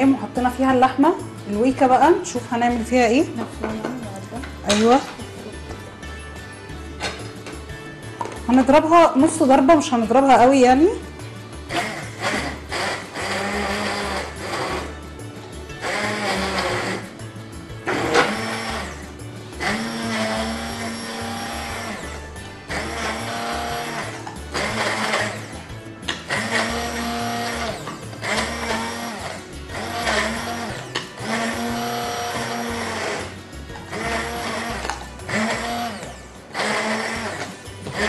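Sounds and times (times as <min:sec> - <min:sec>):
background music: 0:00.0 - 0:38.0
immersion blender whirring: 0:11.7 - 0:15.0, 0:15.7 - 0:38.0.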